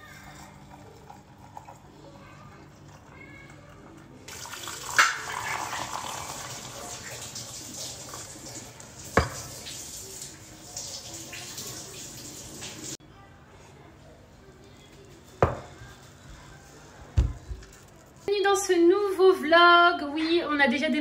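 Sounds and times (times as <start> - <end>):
hot water pouring: 4.3 - 13.0.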